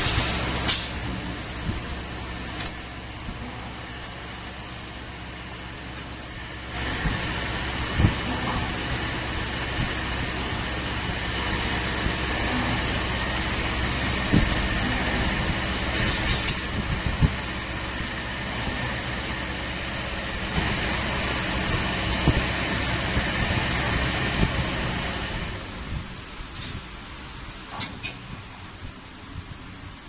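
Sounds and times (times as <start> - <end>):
thin high whine: 5.6 - 26.0.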